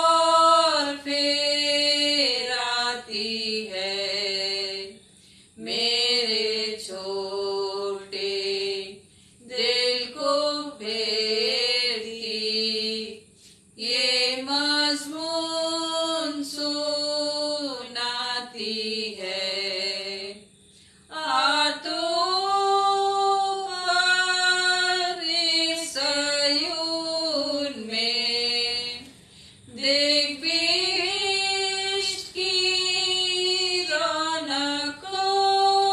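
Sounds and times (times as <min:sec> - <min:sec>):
women singing unaccompanied: 0:00.0 - 0:35.9.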